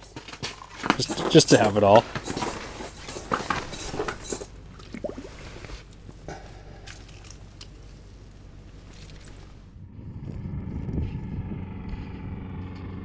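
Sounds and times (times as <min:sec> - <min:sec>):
handling clicks and knocks: 0:00.0 - 0:05.0.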